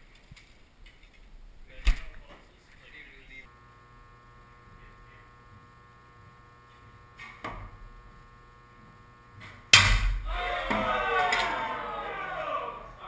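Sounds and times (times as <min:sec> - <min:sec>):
electrical hum: 0:01.6 - 0:13.0
arrow thud into target: 0:09.8 - 0:10.2.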